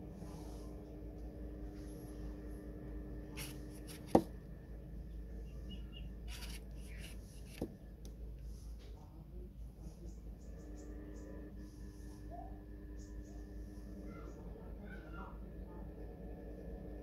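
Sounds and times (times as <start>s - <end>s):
low hum: 0.0s - 17.0s
knife cutting fruit peel: 3.4s - 4.3s.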